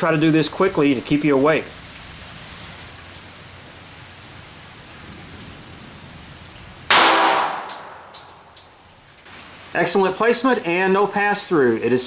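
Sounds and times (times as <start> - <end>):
steady hiss: 0.0 - 12.0
pistol shot with echo: 6.9 - 8.1.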